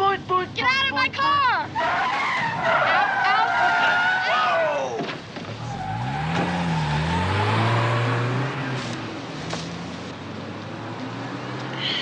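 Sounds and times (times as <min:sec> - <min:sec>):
car driving off: 0:01.8 - 0:12.0
car engine revving: 0:05.6 - 0:11.9.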